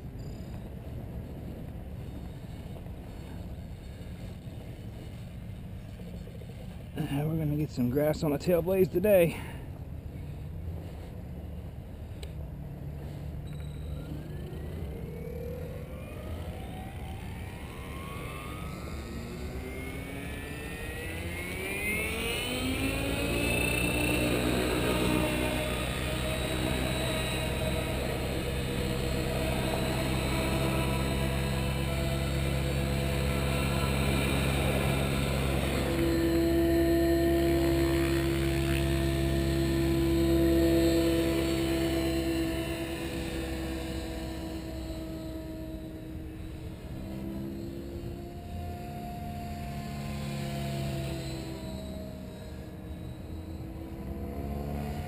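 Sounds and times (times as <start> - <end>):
rc helicopter motor whine: 0.0 - 55.0
rotor whir: 10.1 - 55.0
strong steady tone: 13.0 - 55.0.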